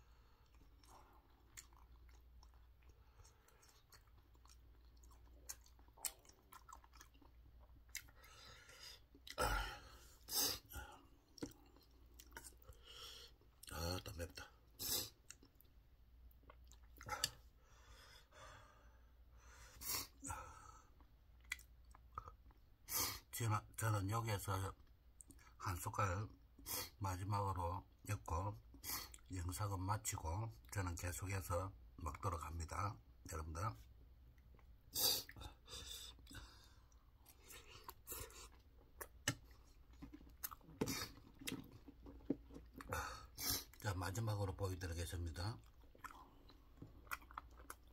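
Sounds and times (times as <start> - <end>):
man chewing: 0.2 - 13.7, 14.8 - 15.7, 16.3 - 17.5, 21.0 - 22.7, 34.4 - 43.9, 45.6 - 47.9
breathing: 8.1 - 11.1, 12.7 - 13.4, 17.6 - 20.9, 35.4 - 38.5
mouth clicks and smacks: 21.0 - 22.6, 36.1 - 42.9.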